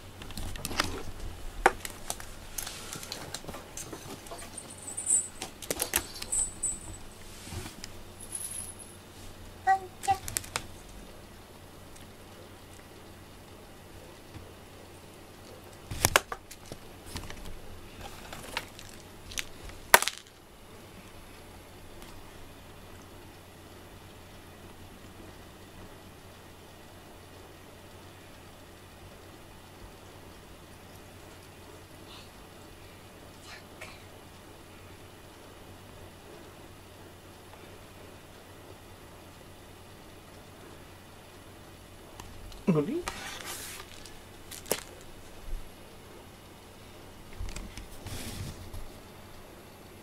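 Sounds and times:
low steady background noise: 0:00.0 - 0:50.0.

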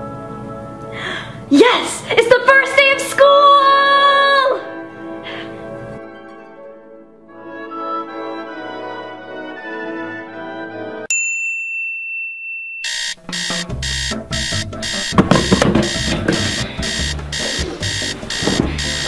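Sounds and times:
light music: 0:00.0 - 0:11.1, 0:13.2 - 0:19.0
alarm clock beeping: 0:12.8 - 0:19.0
held electronic tone: 0:12.8 - 0:19.0
rustling and knocks: 0:15.0 - 0:16.6, 0:17.2 - 0:19.0.

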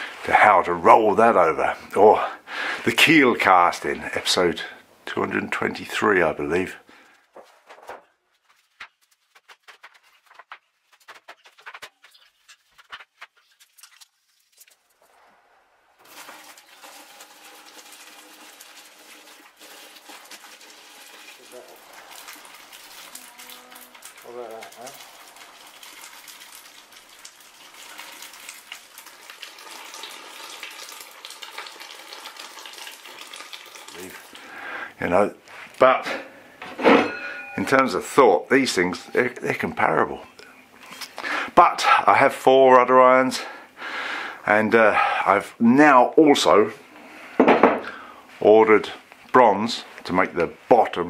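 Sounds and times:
footsteps on concrete: 0:07.3 - 0:13.6.

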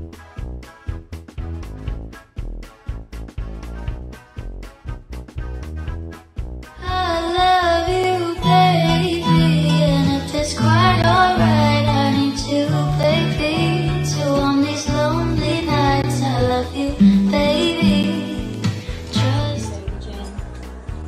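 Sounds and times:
bass line: 0:00.0 - 0:21.0
song with high singing voice: 0:06.8 - 0:21.0.

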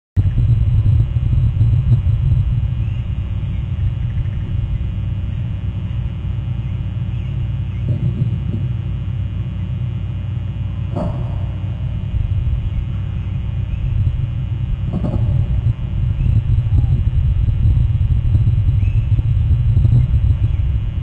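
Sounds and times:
low rumble on microphone: 0:00.2 - 0:21.0
distant bird piping calls: 0:02.6 - 0:08.8, 0:10.8 - 0:17.0, 0:18.5 - 0:20.9.

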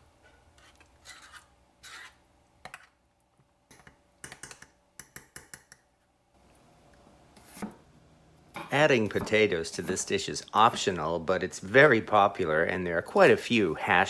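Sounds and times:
spoon scraping bowl: 0:00.6 - 0:02.9.

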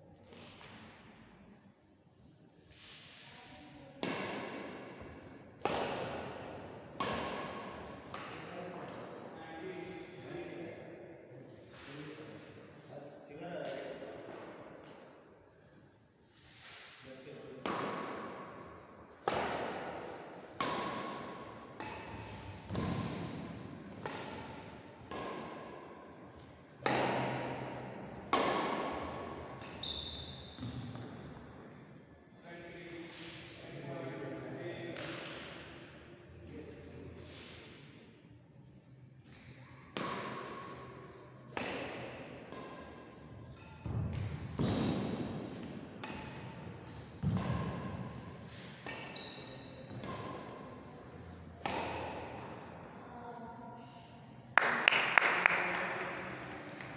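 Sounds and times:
badminton racket hitting shuttlecock: 0:04.0 - 0:04.9, 0:05.6 - 0:06.3, 0:07.0 - 0:08.5, 0:19.2 - 0:25.8, 0:26.8 - 0:29.8, 0:41.5 - 0:46.5, 0:47.2 - 0:50.6, 0:51.6 - 0:52.2
shoes squeaking on wooden court: 0:28.4 - 0:31.3, 0:46.0 - 0:50.4, 0:51.1 - 0:52.7.

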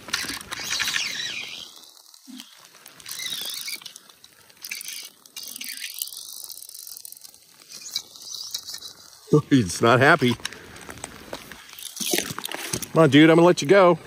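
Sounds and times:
fly reel drag buzzing: 0:00.0 - 0:10.6
rain pattering: 0:01.4 - 0:14.0.

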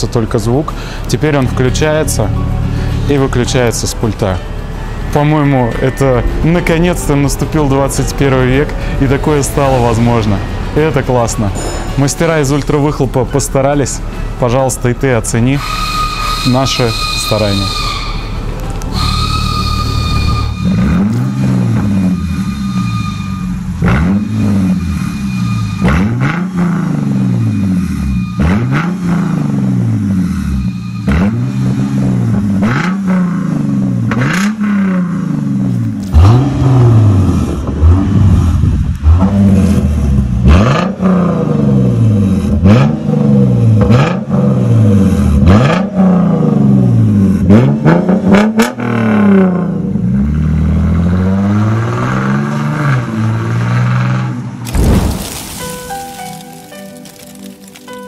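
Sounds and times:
car engine revving: 0:15.6 - 0:55.0.

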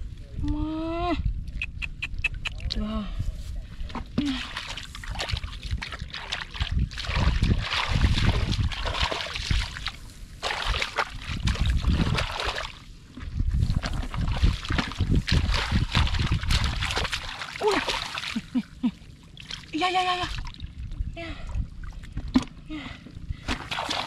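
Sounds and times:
shallow water splashing: 0:04.2 - 0:22.4, 0:23.4 - 0:24.0.

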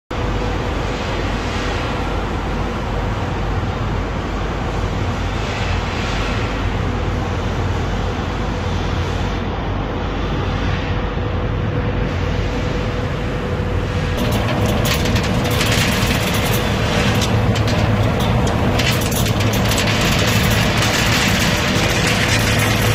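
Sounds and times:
roasting machine humming: 0:11.2 - 0:22.9.

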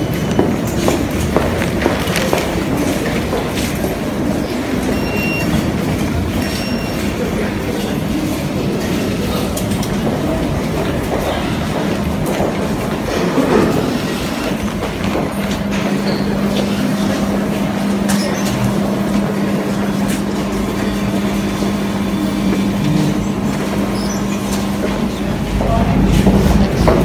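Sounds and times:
train wheels on track: 0:00.0 - 0:27.0.

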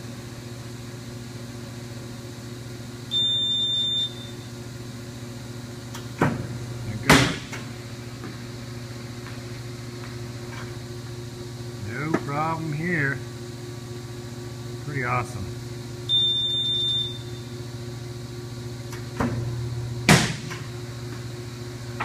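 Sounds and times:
pitching machine motor hum: 0:00.0 - 0:22.0
high beep: 0:16.1 - 0:17.4
sharp thumps of ball firing: 0:20.1 - 0:20.6.

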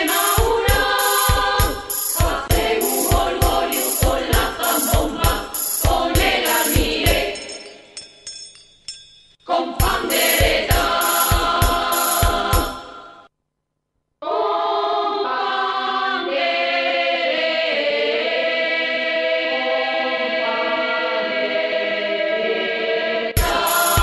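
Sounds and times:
choir singing held chords: 0:00.0 - 0:07.8, 0:09.5 - 0:13.3, 0:14.2 - 0:24.0
music with steady beat: 0:00.0 - 0:08.5, 0:09.8 - 0:13.2, 0:23.4 - 0:24.0.

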